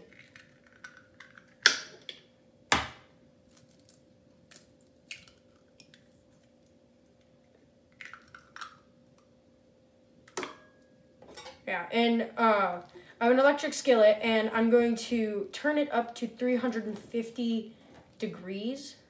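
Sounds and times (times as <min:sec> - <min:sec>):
eggshell crackling: 0:00.0 - 0:01.7, 0:03.5 - 0:08.9
faint steady hum: 0:00.0 - 0:19.0.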